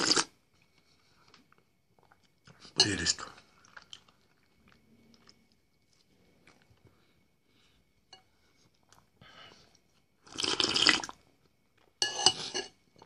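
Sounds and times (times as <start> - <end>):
person slurping soup: 10.3 - 11.2.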